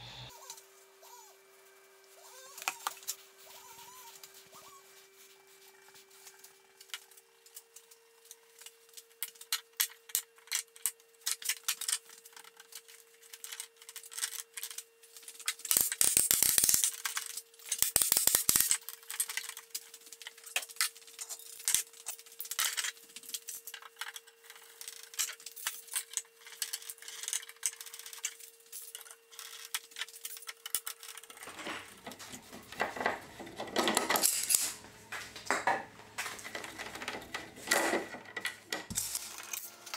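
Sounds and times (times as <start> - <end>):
metal clamps rattling and scraping: 16.7 - 34.8, 35.6 - 39.6.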